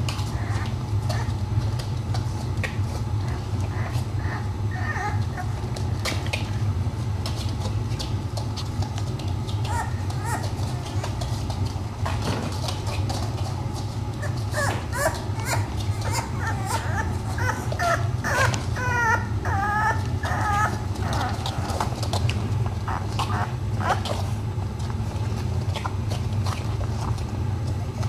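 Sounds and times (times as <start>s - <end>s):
puppies whimpering and yipping: 0.0s - 1.6s, 3.0s - 6.4s, 9.5s - 11.3s, 14.2s - 24.4s.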